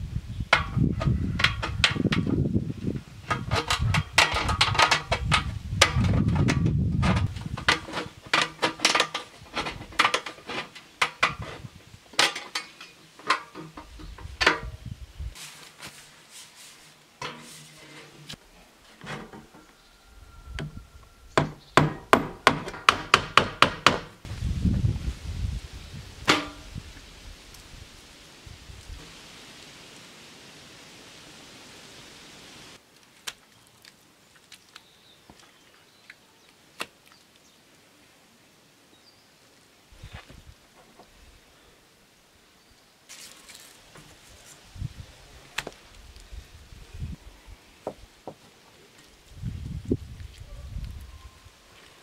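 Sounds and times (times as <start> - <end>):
hand tools knocking and tapping: 21.4 - 24.1.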